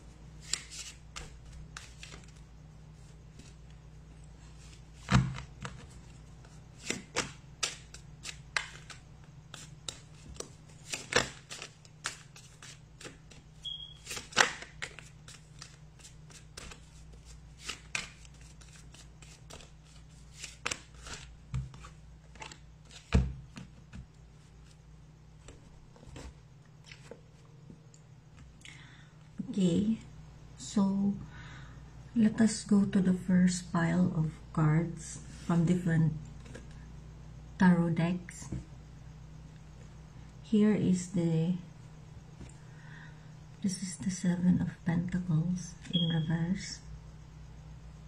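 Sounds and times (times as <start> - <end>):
cards snapping on table: 6.8 - 13.4, 14.0 - 15.8.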